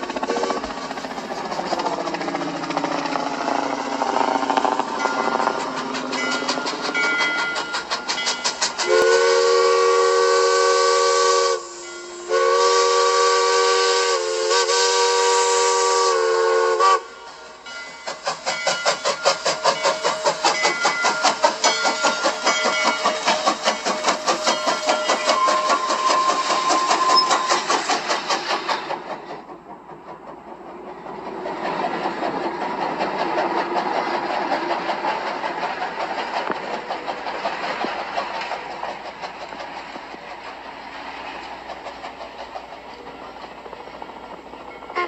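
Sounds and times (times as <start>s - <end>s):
locomotive exhaust chuffing: 0.0s - 45.0s
steam locomotive chime whistle: 0.2s - 0.7s, 3.9s - 27.8s, 43.0s - 45.0s.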